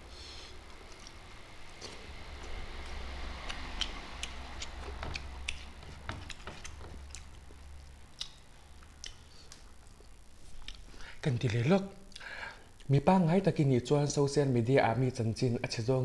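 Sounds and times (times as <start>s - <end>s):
chewing with wet mouth clicks: 0.8s - 10.0s, 10.6s - 10.8s.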